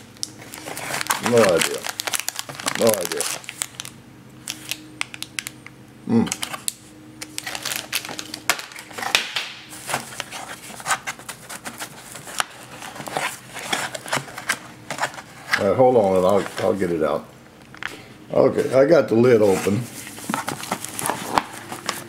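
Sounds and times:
plastic bag rustling: 0.0 - 4.8, 7.3 - 17.1, 18.5 - 22.0
person humming: 6.0 - 6.4.

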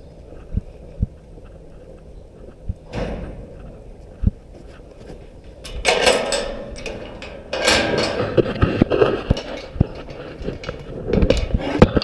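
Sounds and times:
metal gate rattling and clanking: 2.9 - 3.9, 5.4 - 12.0.

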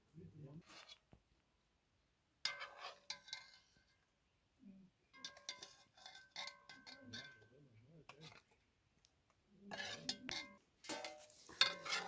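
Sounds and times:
metal spoon clinking on pot: 5.1 - 7.5, 9.7 - 12.0.

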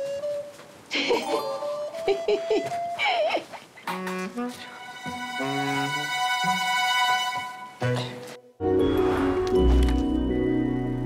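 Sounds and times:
chiming tones: 1.1 - 1.9
whoosh: 8.8 - 10.0.

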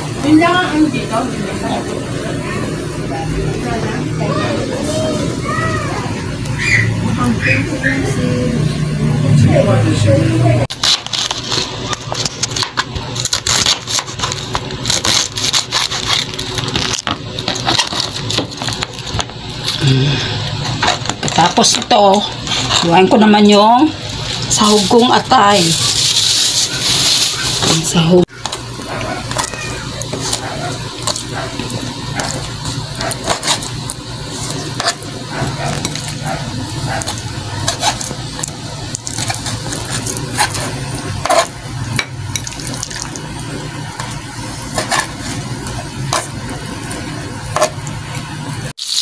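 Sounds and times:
knife slicing through cabbage: 12.4 - 16.7.

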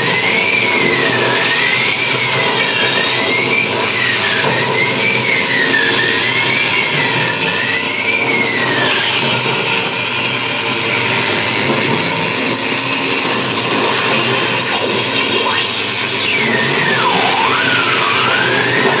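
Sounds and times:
high whistling tone: 0.0 - 19.0
electronic noise music: 11.5 - 19.0
pitches sweeping down and up: 13.9 - 19.0.

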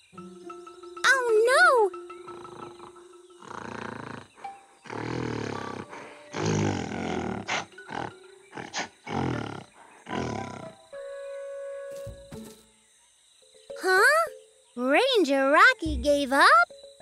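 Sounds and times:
gorilla low threat calls: 2.3 - 10.8.

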